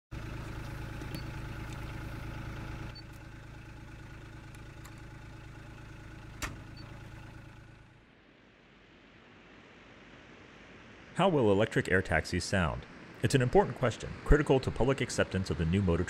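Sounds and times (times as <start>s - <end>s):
vehicle engine idling: 0.1s - 8.3s.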